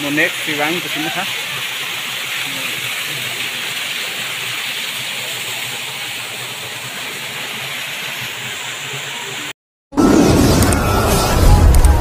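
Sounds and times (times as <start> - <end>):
waterfall rushing: 0.0 - 9.5.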